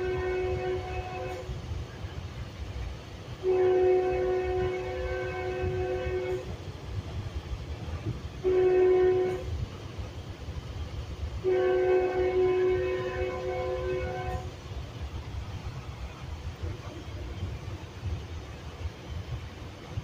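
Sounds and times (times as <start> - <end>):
train air horn blasts: 0.0 - 1.5, 3.4 - 6.5, 8.4 - 9.5, 11.4 - 14.5
train rumbling along rails: 0.0 - 20.0.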